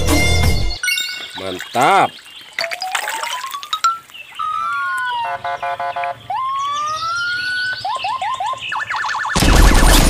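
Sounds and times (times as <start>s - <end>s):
fast warbling siren: 4.4s - 5.6s, 6.2s - 10.0s
machine-gun fire: 9.4s - 10.0s.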